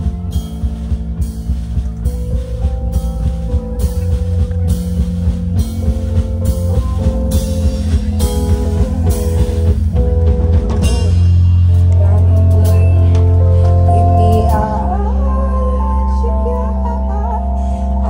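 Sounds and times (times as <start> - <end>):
drum kit beat: 0.0 - 14.9
bass guitar: 0.0 - 18.0
electric guitar: 0.0 - 18.0.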